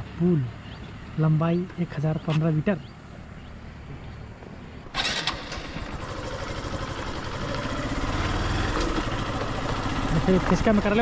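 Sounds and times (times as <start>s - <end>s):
motorcycle engine approaching: 4.0s - 11.0s.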